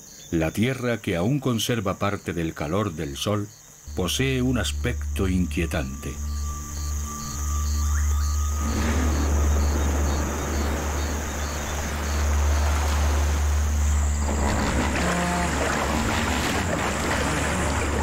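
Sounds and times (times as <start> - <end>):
crickets chirping: 0.0 - 18.0
steady low rumble: 3.9 - 18.0
hippos splashing in water: 8.6 - 18.0.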